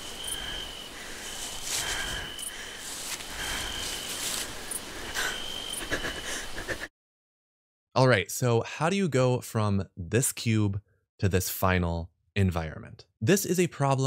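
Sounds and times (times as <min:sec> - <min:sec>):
faint ticks and rustles: 0:00.0 - 0:04.9
steady hiss: 0:00.0 - 0:05.5
cricket chirping: 0:00.0 - 0:06.6.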